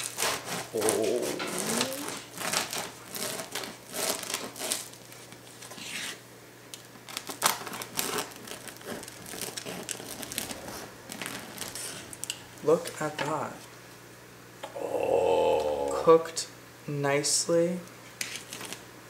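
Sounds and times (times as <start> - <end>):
bread knife sawing through crust: 0.0 - 4.9, 8.0 - 10.8.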